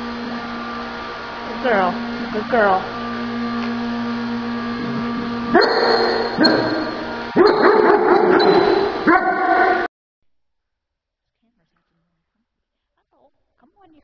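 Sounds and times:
dog yipping and whining: 5.5s - 9.9s.

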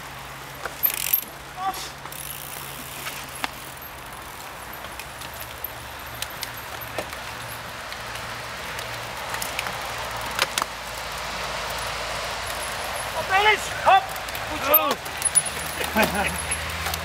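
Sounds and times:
bike tyres on soil: 0.0s - 17.0s
chain and gear rattles: 0.7s - 1.3s, 2.1s - 7.8s, 11.7s - 17.0s.

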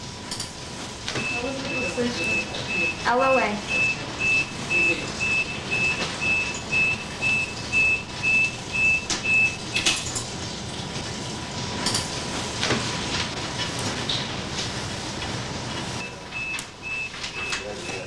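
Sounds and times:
hospital monitor beeping: 1.0s - 10.4s, 15.8s - 18.0s.

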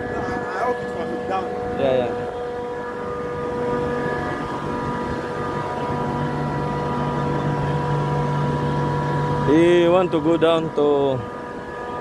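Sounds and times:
chiller machinery drone: 0.0s - 12.0s
low hum: 0.0s - 12.0s.

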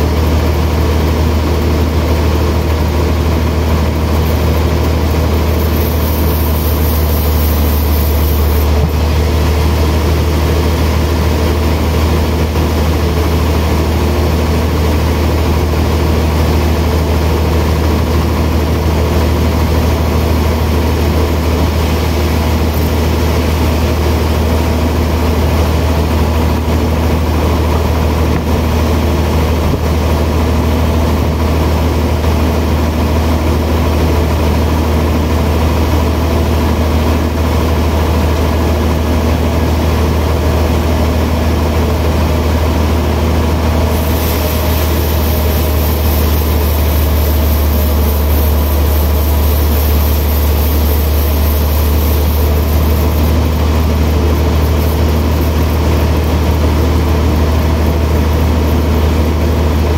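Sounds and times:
band saw humming: 0.0s - 14.1s, 43.6s - 57.0s.

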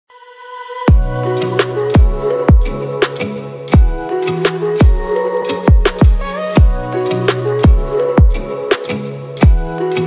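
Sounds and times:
electronic beat with deep thumps: 0.9s - 3.2s, 3.8s - 5.1s, 5.7s - 9.8s.

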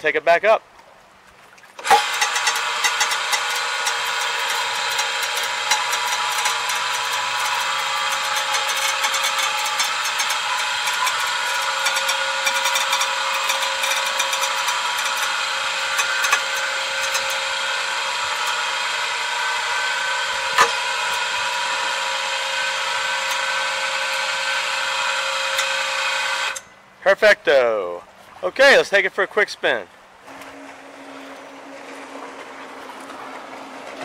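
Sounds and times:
electric motor and cable winder whine: 1.8s - 26.7s, 30.2s - 34.0s.

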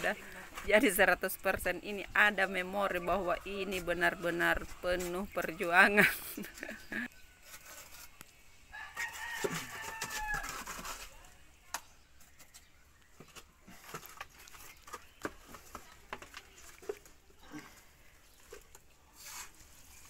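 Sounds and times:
rooster crowing: 8.7s - 10.6s
mortar scooped from plastic bucket: 18.4s - 20.0s.

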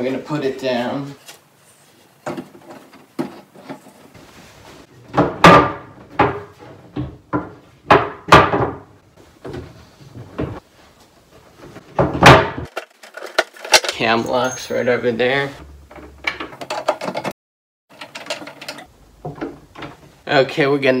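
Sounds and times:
wooden knocks and thuds: 5.0s - 10.6s, 11.6s - 12.7s, 19.2s - 20.2s.

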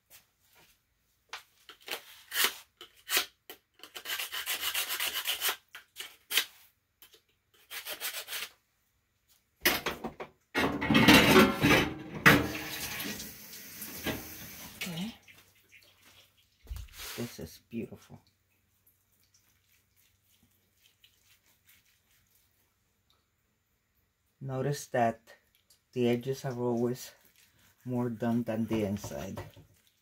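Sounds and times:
knife rasping on sharpener: 3.8s - 5.6s, 7.6s - 8.5s.

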